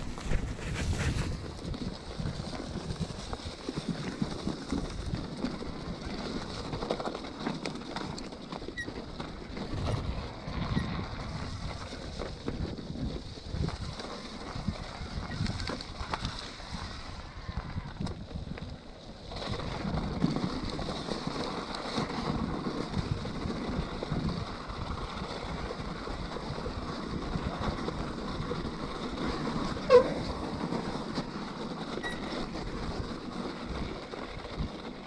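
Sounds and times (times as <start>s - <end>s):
wind on microphone: 0.0s - 5.8s, 9.5s - 20.9s
bike rattling: 0.0s - 35.0s
bike tyres rolling on trail: 0.0s - 35.0s
short high squeak: 29.8s - 30.2s, 32.0s - 32.4s.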